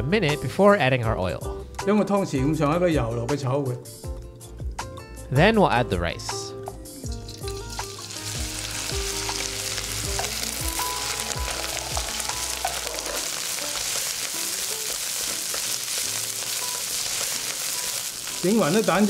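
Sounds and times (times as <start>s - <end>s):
rice sizzling in a wok: 7.1s - 19.0s.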